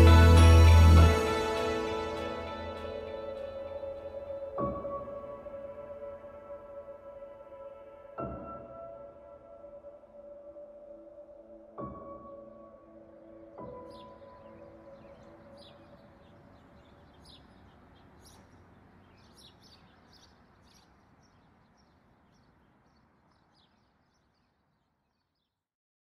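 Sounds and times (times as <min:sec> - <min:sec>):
steady low hiss: 0:00.0 - 0:08.4, 0:12.5 - 0:25.0
faint birds chirping: 0:13.4 - 0:25.7.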